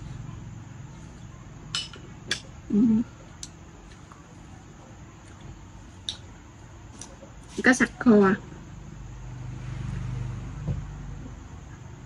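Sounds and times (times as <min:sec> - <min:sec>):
person humming low: 0:02.7 - 0:03.1.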